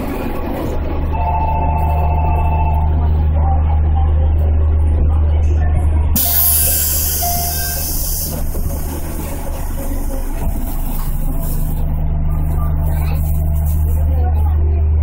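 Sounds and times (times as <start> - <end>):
train equipment low hum: 0.0 - 15.0
compressed air hiss: 6.2 - 8.5.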